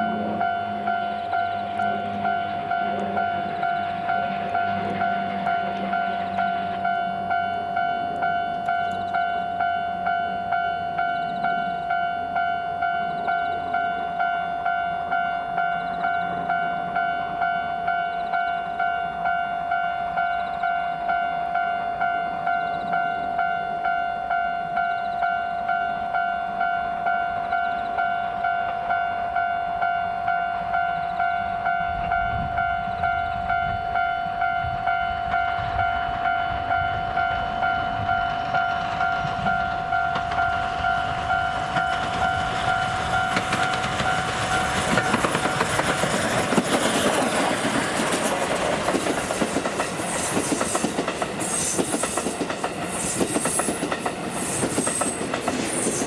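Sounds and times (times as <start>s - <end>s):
pulsing ringing tone: 0.0s - 46.6s
steam train passing: 0.0s - 56.0s
wheels clacking over rail joints: 37.2s - 56.0s.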